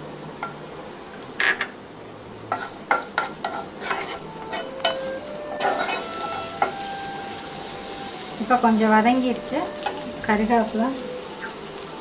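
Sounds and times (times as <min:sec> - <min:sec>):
onions sizzling in oil: 0:00.0 - 0:12.0
spatula scraping and knocking pan: 0:02.5 - 0:06.9.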